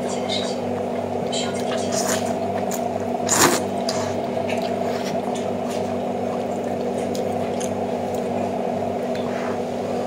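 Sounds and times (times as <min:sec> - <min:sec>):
steady low hum: 0:00.0 - 0:10.0
person slurping noodles: 0:03.2 - 0:04.2.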